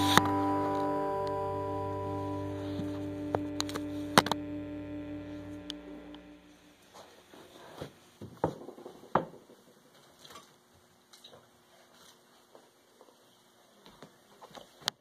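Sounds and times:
background music: 0.0 - 6.4.

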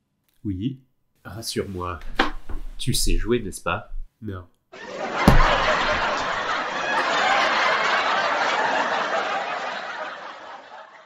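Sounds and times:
studio audience laughing: 4.8 - 11.0.

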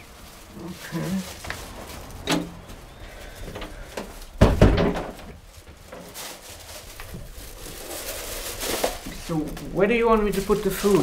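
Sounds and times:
door thudding against frame: 4.4 - 5.4.

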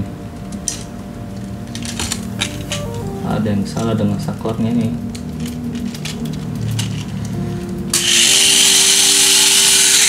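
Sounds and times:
small electric motor whirring: 7.9 - 10.0.

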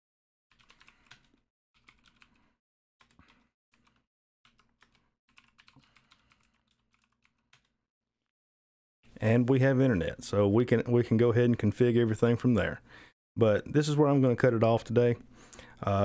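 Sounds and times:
faint computer keyboard typing: 0.5 - 2.4, 3.0 - 7.8.

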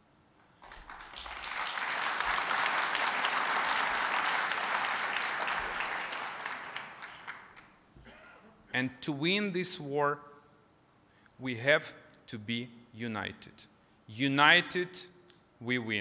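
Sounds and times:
audience applauding: 0.6 - 7.8.

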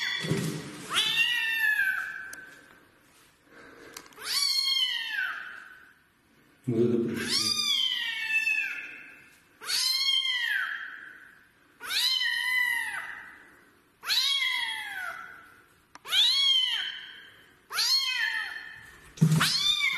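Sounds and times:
kitten meowing: 0.0 - 2.3, 4.2 - 5.6, 7.2 - 8.9, 9.6 - 10.9, 11.8 - 13.2, 14.0 - 15.3, 16.0 - 18.7, 19.3 - 19.9.

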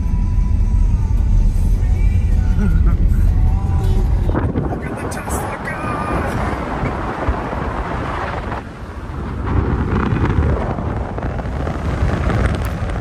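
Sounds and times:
car road noise: 0.0 - 13.0
wind buffeting microphone: 4.0 - 13.0.

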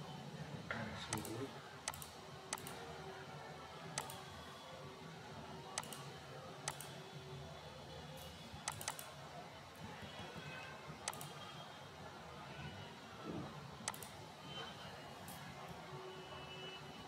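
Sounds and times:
computer mouse clicking: 1.1 - 2.8, 4.0 - 4.2, 5.8 - 6.9, 8.6 - 9.1, 11.1 - 11.3, 13.8 - 14.1.

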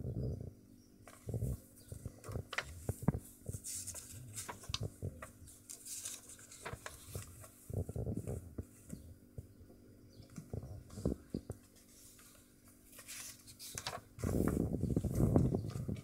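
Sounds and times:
book pages turning: 1.1 - 9.5, 10.3 - 16.0.

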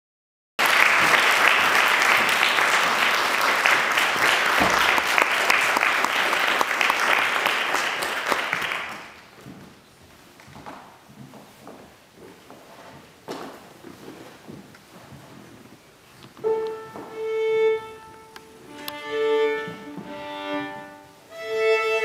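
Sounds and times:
audience applauding: 0.6 - 9.2.

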